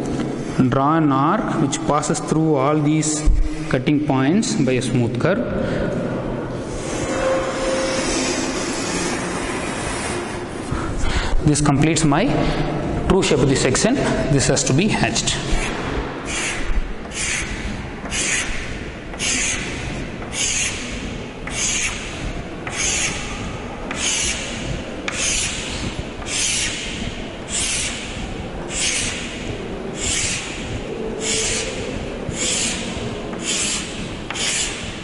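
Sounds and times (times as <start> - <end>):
chalk scraping on chalkboard: 15.5 - 35.0.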